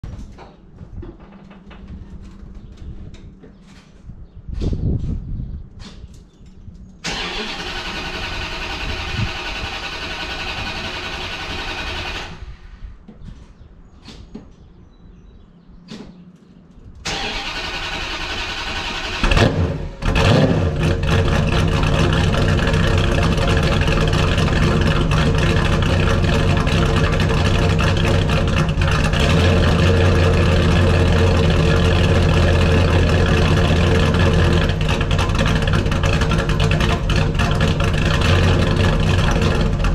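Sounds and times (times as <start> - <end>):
starter motor cranking: 7.1 - 12.4
car engine revving and idling: 17.4 - 39.9.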